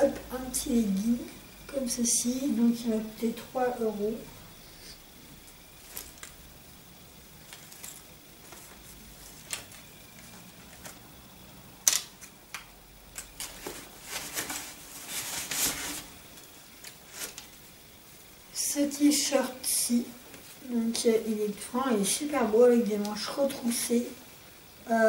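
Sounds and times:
clothes rustling: 0:05.4 - 0:06.4, 0:07.4 - 0:11.1, 0:13.3 - 0:17.7.

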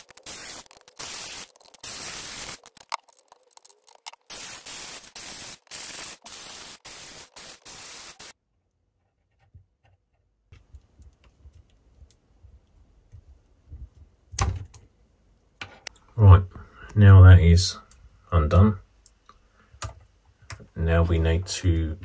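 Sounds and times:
static hiss: 0:00.0 - 0:08.4.

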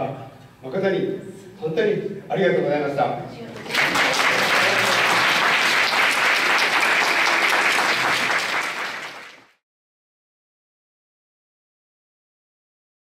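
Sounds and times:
audience applauding: 0:03.6 - 0:09.6.

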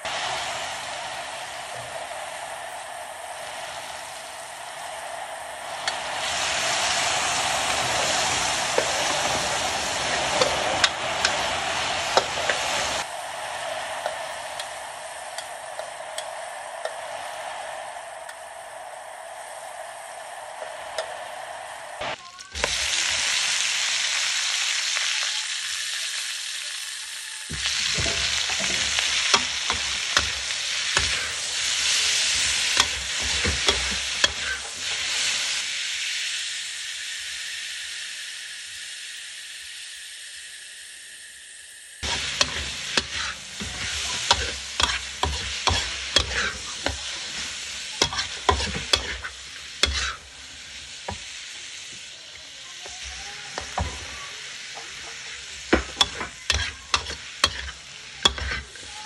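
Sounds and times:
food sizzling in a wok: 0:00.0 - 0:59.0
metal spatula scraping a wok: 0:27.5 - 0:35.6, 0:42.0 - 0:51.4, 0:54.8 - 0:59.0.

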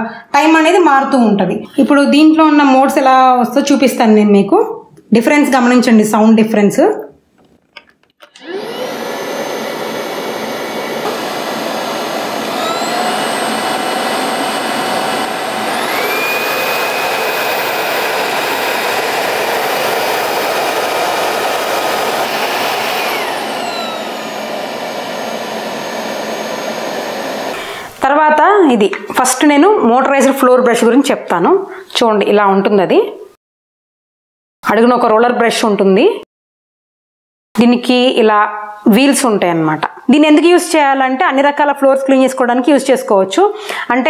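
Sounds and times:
vacuum cleaner motor whining: 0:08.2 - 0:28.1.

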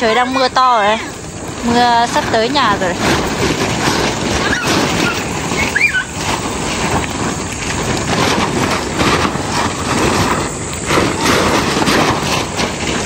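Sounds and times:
heavy rain falling: 0:00.0 - 0:13.0
high squeak: 0:04.4 - 0:06.2.

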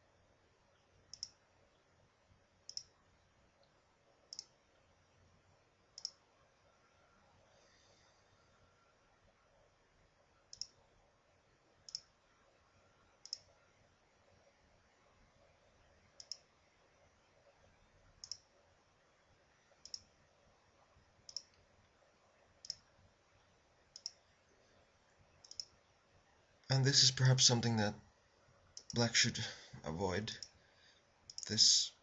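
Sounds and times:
computer mouse button clicking: 0:01.1 - 0:01.4, 0:02.7 - 0:02.9, 0:06.0 - 0:06.2, 0:10.5 - 0:10.8, 0:13.2 - 0:13.5, 0:16.2 - 0:16.4, 0:18.2 - 0:18.5, 0:19.8 - 0:20.1, 0:21.3 - 0:21.6, 0:24.0 - 0:24.2, 0:25.4 - 0:25.7.

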